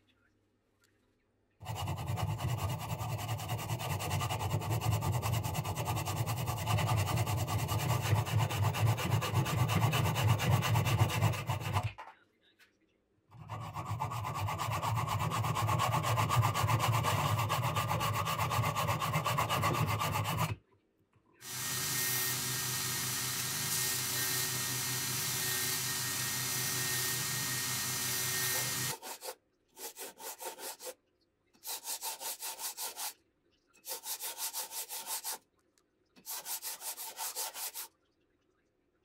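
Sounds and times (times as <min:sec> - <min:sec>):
hacksaw cutting metal: 0:13.4 - 0:20.6, 0:21.4 - 0:30.9
belt grinder running: 0:21.4 - 0:29.0.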